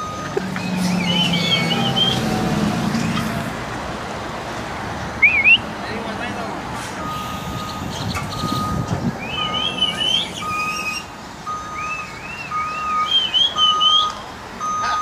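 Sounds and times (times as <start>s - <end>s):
truck reversing alarm beeping: 0.0s - 3.4s, 5.2s - 5.7s, 7.0s - 15.0s
engine rumble: 0.0s - 15.0s
warbling whistles: 7.6s - 11.1s.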